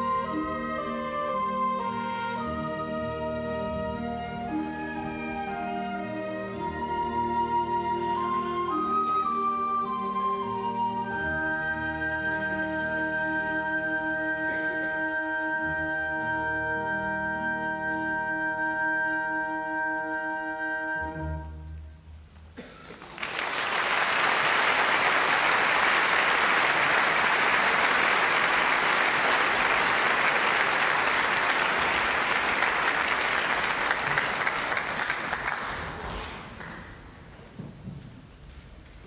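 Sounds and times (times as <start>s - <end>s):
audience applause: 22.9s - 37.3s.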